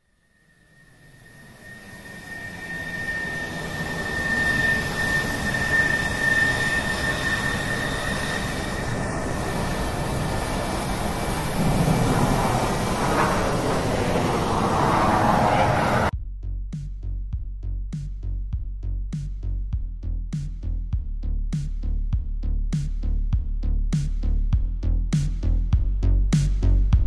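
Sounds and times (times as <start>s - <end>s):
thin high engine whine: 0.0s - 16.1s
jet engine rush in cabin: 1.0s - 16.1s.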